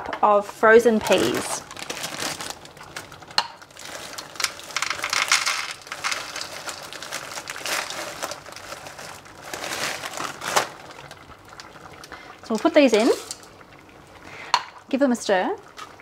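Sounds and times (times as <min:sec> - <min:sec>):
frozen peas pattering into cup: 0:01.0 - 0:11.2
plastic bag crinkling: 0:01.0 - 0:11.3.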